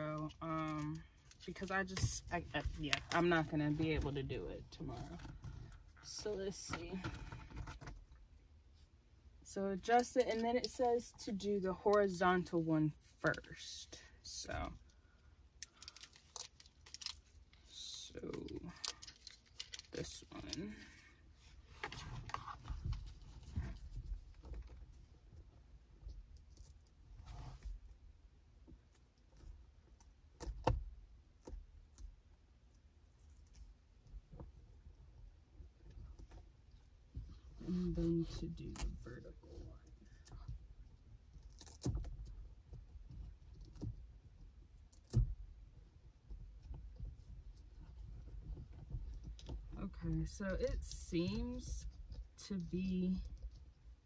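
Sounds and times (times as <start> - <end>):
low rumble of rubbing: 17.6 - 28.4.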